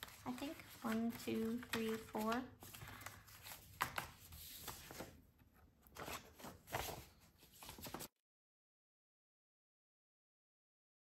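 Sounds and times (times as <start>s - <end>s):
paper pages rustling and sliding: 0.0s - 8.2s.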